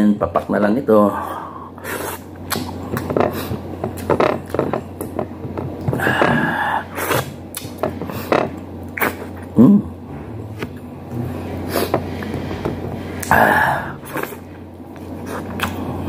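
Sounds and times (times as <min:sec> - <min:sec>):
wet chewing and lip-smacking: 0:02.4 - 0:05.1
man's short low vocal sound: 0:09.6 - 0:11.4.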